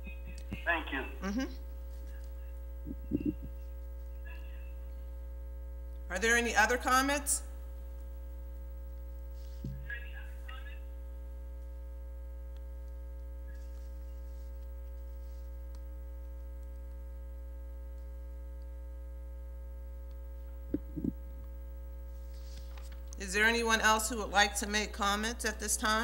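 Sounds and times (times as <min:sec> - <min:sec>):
faint buzzing tones: 0:00.0 - 0:06.7, 0:07.4 - 0:23.6
electrical mains hum: 0:00.0 - 0:26.0.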